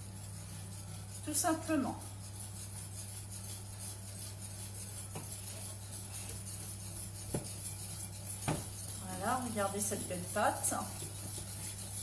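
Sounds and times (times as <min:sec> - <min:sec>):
whisk scraping batter: 0:00.0 - 0:12.0
whisk knocking against glass: 0:06.2 - 0:08.9.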